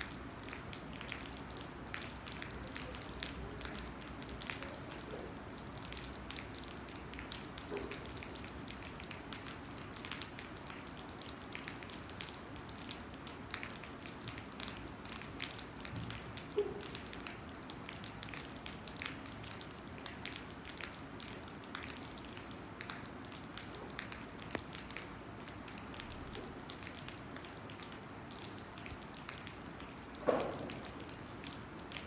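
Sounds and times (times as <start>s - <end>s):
raindrops ticking: 0.0s - 32.0s
knock: 30.2s - 30.8s.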